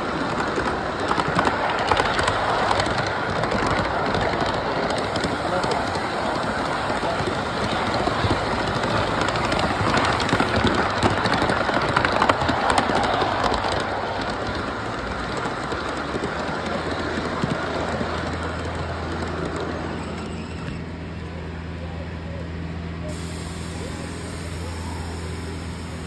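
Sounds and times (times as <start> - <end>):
dense rushing noise: 0.0 - 20.0
miniature train wheel clatter: 0.0 - 21.3, 23.1 - 26.0.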